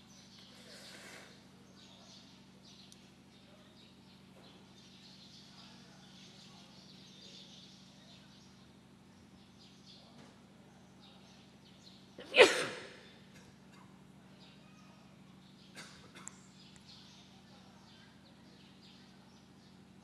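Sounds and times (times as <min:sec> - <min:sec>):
steady low hum: 0:00.0 - 0:20.0
man sneezing: 0:12.2 - 0:13.0.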